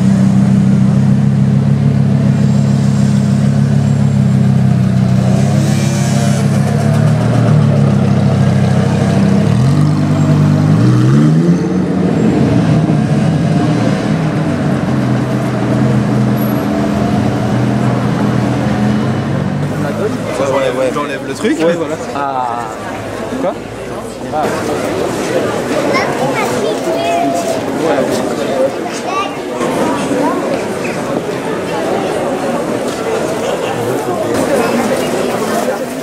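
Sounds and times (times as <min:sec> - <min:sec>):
car engine revving: 0:00.0 - 0:22.2.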